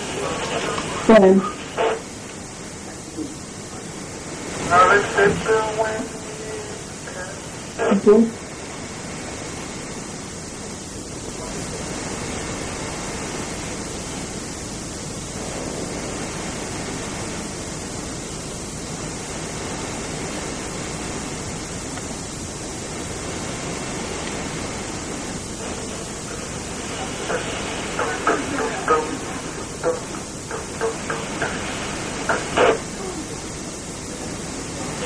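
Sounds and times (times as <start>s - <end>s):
camcorder hiss: 0.0s - 35.0s.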